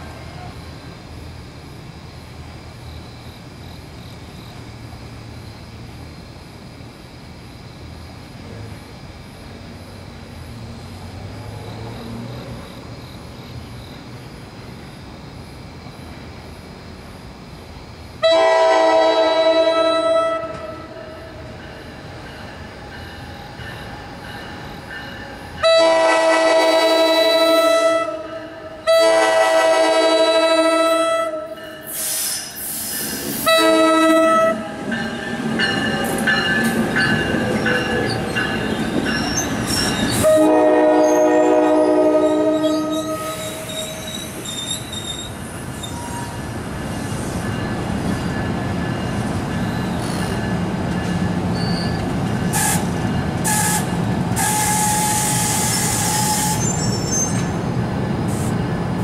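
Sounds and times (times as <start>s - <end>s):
train rolling rumble: 0.0s - 59.0s
train air horn blasts: 18.2s - 21.0s, 25.6s - 32.3s, 33.4s - 34.7s, 40.2s - 44.1s, 52.5s - 56.8s
wheel flange squeal: 35.6s - 40.4s, 42.2s - 47.3s, 51.5s - 52.8s, 53.5s - 57.5s.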